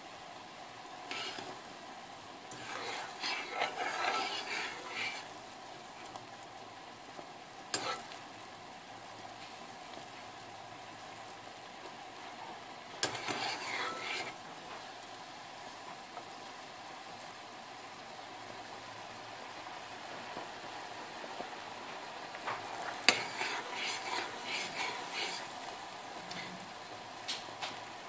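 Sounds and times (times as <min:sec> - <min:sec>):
stirring: 0:01.1 - 0:01.6, 0:02.5 - 0:05.3, 0:07.8 - 0:08.2, 0:13.0 - 0:14.4, 0:22.8 - 0:26.6
syrup bubbling: 0:02.4 - 0:05.5, 0:22.4 - 0:27.1.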